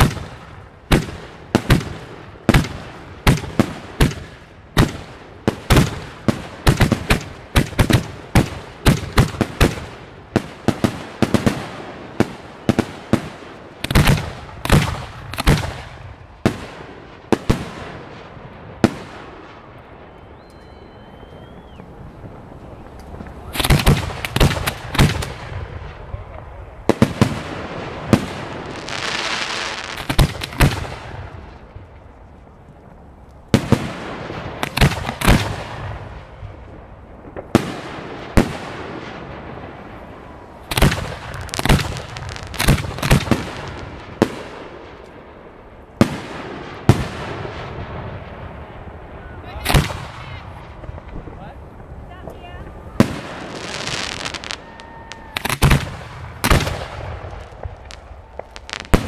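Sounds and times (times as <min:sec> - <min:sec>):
firework bursts: 0:00.0 - 0:32.7, 0:33.4 - 0:59.0
firework hiss: 0:27.2 - 0:30.8, 0:49.7 - 0:59.0.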